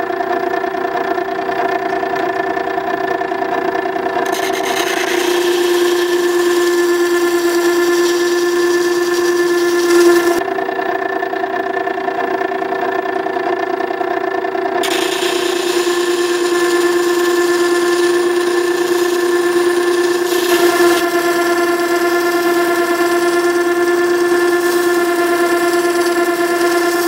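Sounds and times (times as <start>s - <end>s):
sharpener motor hum: 0.4s - 10.8s, 14.7s - 27.0s
steel rasping on wet stone: 4.2s - 10.4s, 14.8s - 27.0s.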